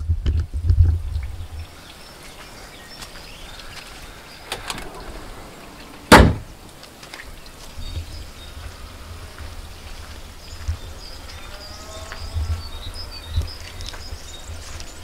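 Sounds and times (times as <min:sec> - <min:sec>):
car bonnet slamming shut: 0:06.0 - 0:06.6.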